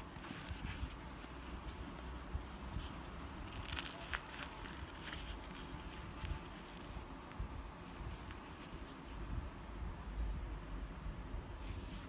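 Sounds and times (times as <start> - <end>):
packaging rustling and ripping: 2.8 - 7.0.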